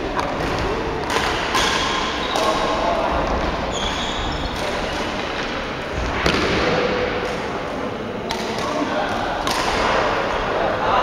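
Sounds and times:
racket hitting shuttlecock: 0.2 - 3.6, 8.2 - 10.2
shoes squeaking on floor: 2.0 - 2.4, 3.7 - 5.1.

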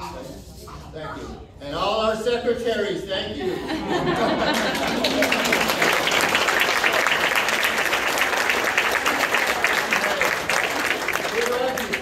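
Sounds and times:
audience applauding: 4.4 - 12.0.

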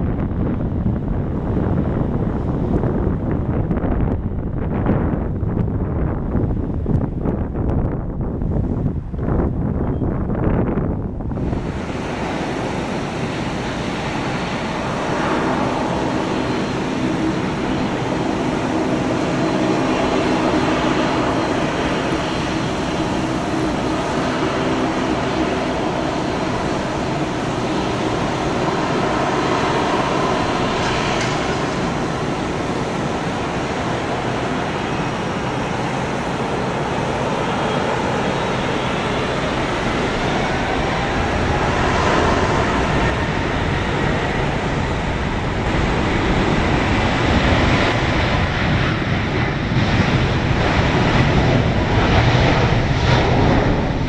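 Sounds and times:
jet engines rushing: 0.0 - 54.0.

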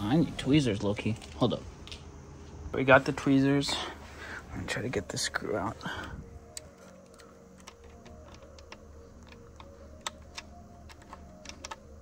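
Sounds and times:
metal tweezers clicking: 6.4 - 11.9.

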